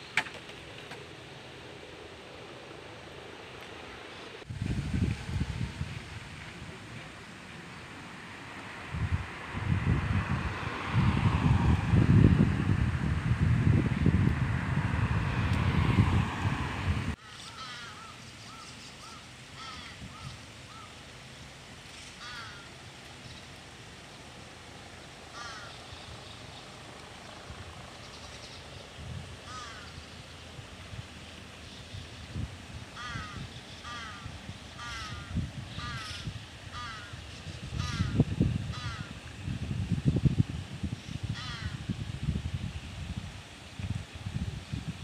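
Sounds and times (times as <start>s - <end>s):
wind rumbling on microphone: 4.4s - 7.6s, 8.6s - 17.2s, 25.4s - 45.0s
car driving past: 8.0s - 17.2s
crows cawing: 17.3s - 20.9s, 22.2s - 22.7s, 25.3s - 25.8s, 29.5s - 30.0s, 33.0s - 37.2s, 37.8s - 39.1s, 41.4s - 41.8s.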